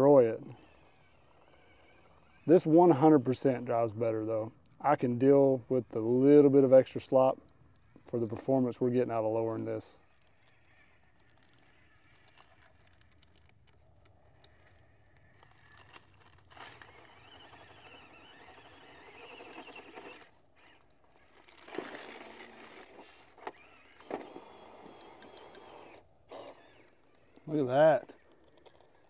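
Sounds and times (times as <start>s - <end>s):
electric motor whining: 0.0s - 4.3s, 10.0s - 29.0s.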